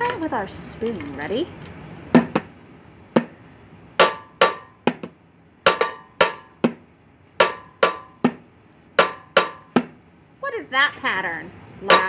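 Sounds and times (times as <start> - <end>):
spoon striking kitchenware: 5.7 - 6.6.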